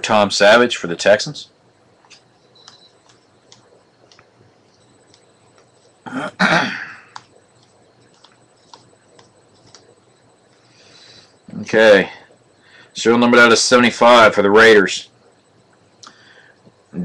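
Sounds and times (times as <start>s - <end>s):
person clearing throat: 6.0s - 7.1s.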